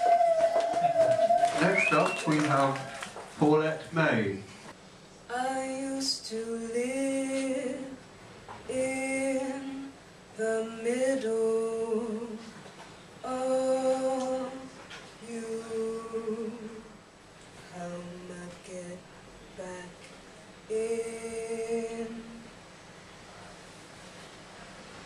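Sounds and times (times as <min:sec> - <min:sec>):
woman singing long held notes: 0:00.0 - 0:01.5, 0:08.7 - 0:12.5, 0:13.2 - 0:17.0, 0:17.7 - 0:19.0, 0:20.7 - 0:22.5.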